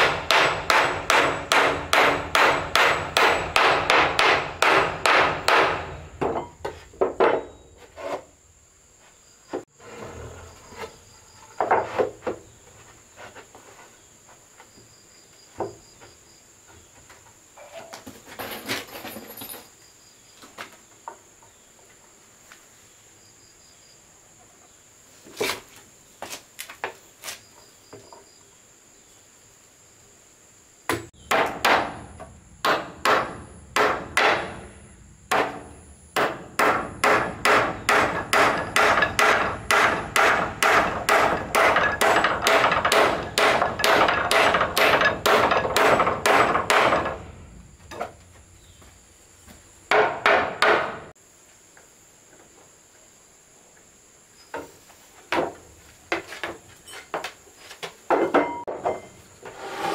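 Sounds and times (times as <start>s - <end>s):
hammer striking wood: 0.0s - 7.5s, 30.9s - 34.7s, 35.3s - 47.3s, 49.9s - 51.1s.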